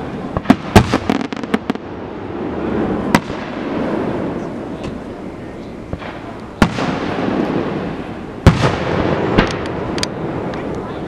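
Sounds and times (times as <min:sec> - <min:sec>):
background rumble: 0:00.0 - 0:11.0
fireworks cracking and popping: 0:00.2 - 0:05.1, 0:05.8 - 0:10.9
loud firework bang: 0:00.4 - 0:01.8, 0:05.9 - 0:09.8.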